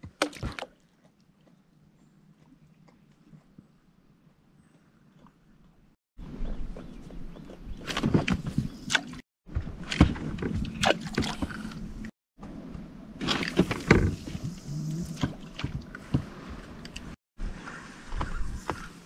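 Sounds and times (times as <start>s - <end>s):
water sloshing: 8.9s - 12.1s.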